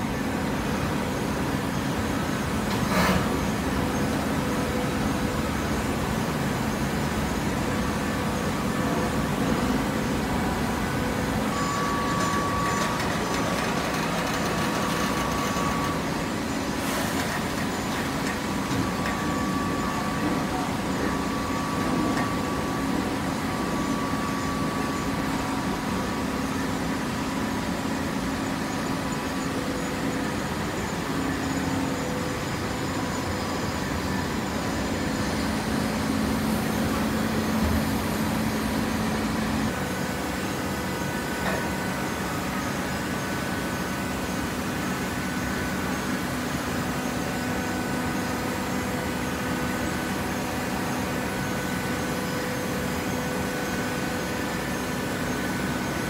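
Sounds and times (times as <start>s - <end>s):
hydraulic baler droning: 7.3s - 46.2s.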